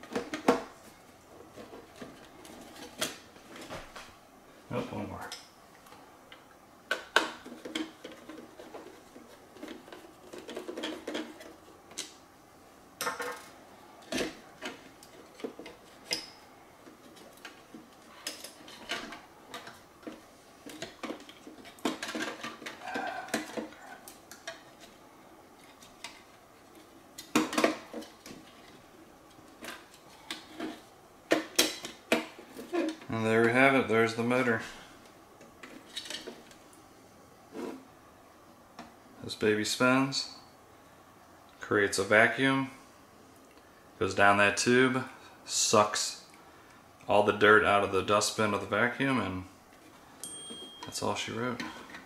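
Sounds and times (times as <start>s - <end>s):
plastic parts clicking and knocking: 6.3s - 12.2s, 16.8s - 24.9s.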